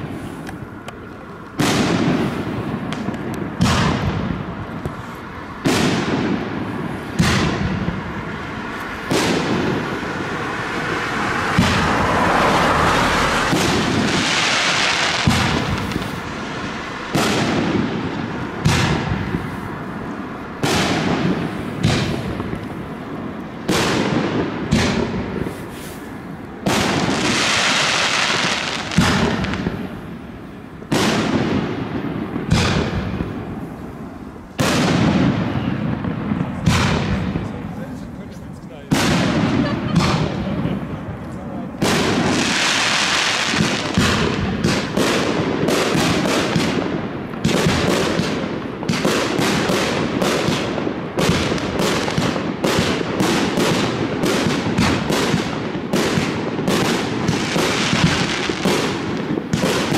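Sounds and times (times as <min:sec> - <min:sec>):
firework bangs: 0:00.0 - 0:59.9
firework hissing rush: 0:01.6 - 0:23.0, 0:25.0 - 0:30.4, 0:41.9 - 0:44.9.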